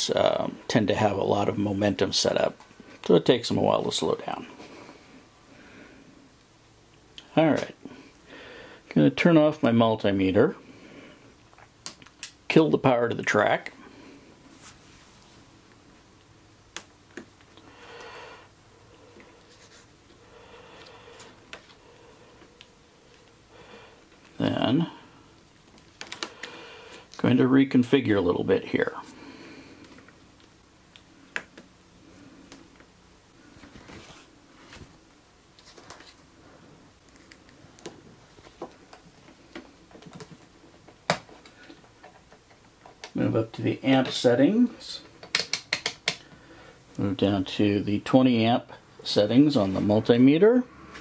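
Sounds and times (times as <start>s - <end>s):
soft rubbing: 14.4s - 15.5s, 19.0s - 20.2s.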